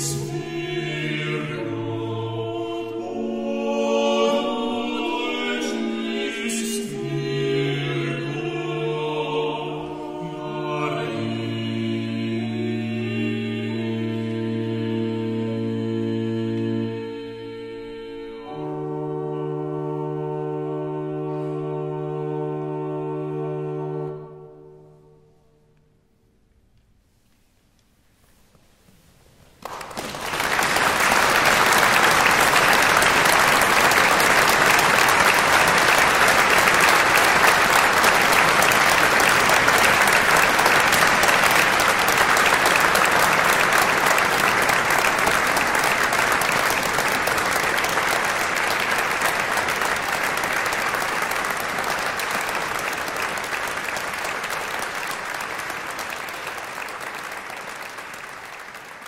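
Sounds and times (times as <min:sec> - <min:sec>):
crowd applause: 0:29.6 - 0:59.0.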